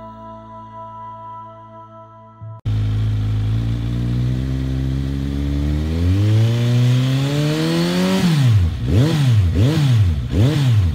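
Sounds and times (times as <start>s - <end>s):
motorcycle engine revving: 2.7s - 10.9s.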